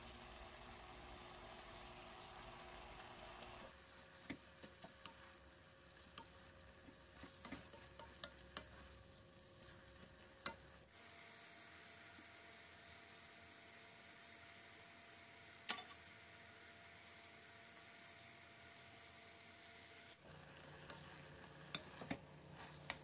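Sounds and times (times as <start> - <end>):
food sizzling in a pan: 0.0 - 23.0
utensil clicking against pan: 7.3 - 8.8.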